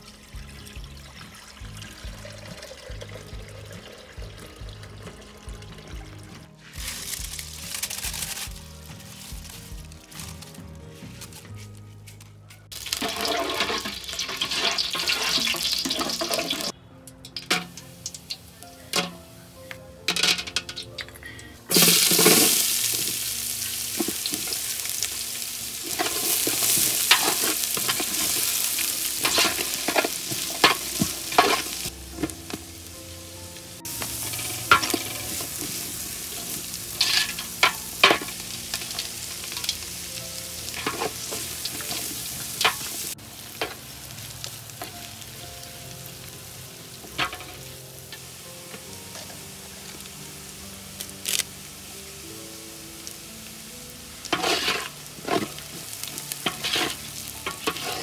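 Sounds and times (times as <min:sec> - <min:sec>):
onions sizzling in oil: 0:06.6 - 0:10.6, 0:12.7 - 0:16.7, 0:21.7 - 0:58.0
wooden spoon scraping a pot: 0:25.8 - 0:32.4, 0:54.3 - 0:58.0.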